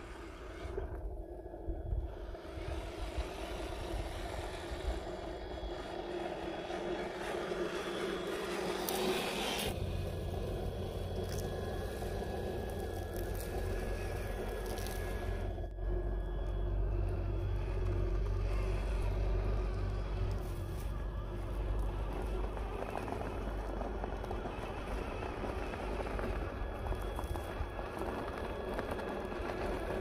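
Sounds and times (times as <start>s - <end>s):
wind rumble on microphone: 0.0s - 30.0s
electric motor and gearbox whining: 2.3s - 30.0s
tyres scraping ground: 8.2s - 15.7s.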